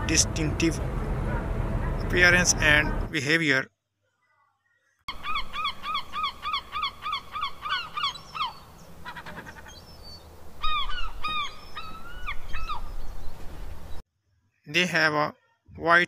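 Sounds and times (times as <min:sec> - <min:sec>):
gulls calling: 0:00.0 - 0:03.2, 0:05.1 - 0:14.0.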